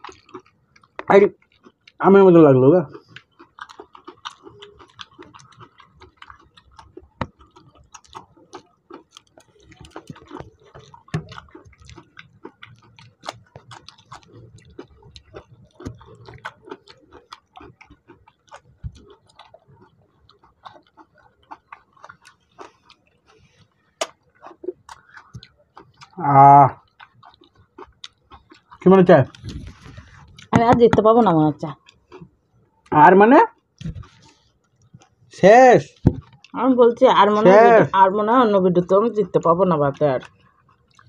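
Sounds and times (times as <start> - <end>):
people eating wet rice by hand: 0.0 - 31.0.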